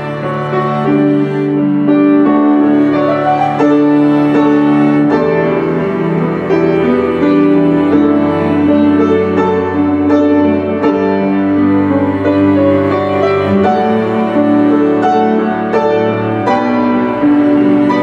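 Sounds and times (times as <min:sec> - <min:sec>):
bowed cello notes: 0:00.0 - 0:18.0
piano chords: 0:00.0 - 0:18.0.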